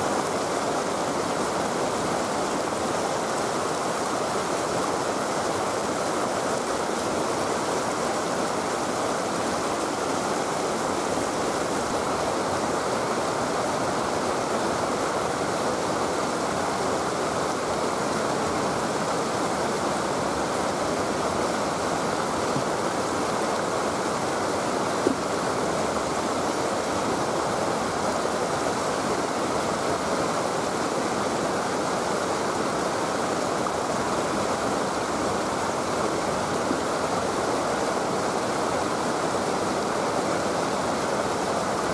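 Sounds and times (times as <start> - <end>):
flowing river water: 0.0 - 41.9.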